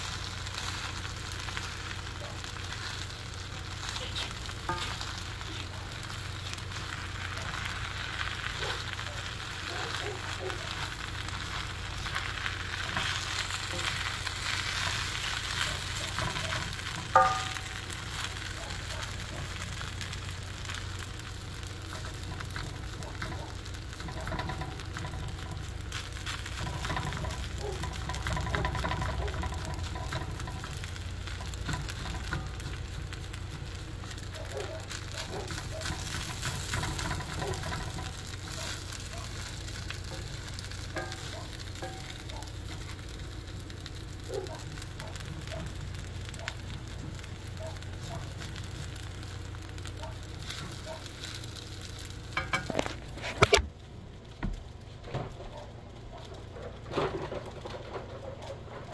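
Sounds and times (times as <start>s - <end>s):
food sizzling in a pan: 0.0s - 53.6s
tongs striking pan clink: 17.2s - 17.7s.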